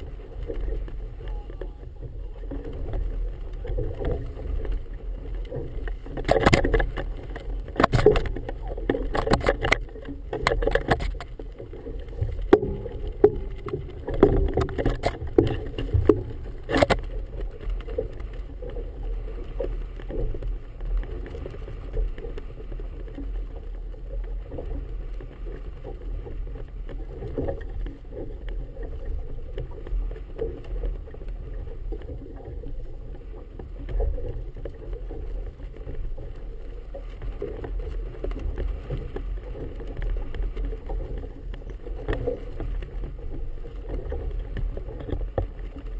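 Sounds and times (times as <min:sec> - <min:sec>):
water slapping against boat hull: 0:00.0 - 0:19.0
wind rumble on microphone: 0:00.0 - 0:45.9.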